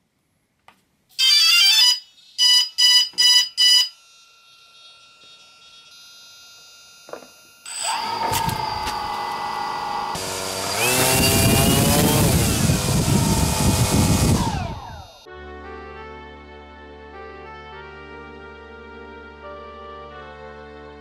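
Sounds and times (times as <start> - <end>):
short beeps: 1.2 - 4.2
drone propellers whirring: 7.7 - 15.3
rising startup tones: 7.7 - 15.3.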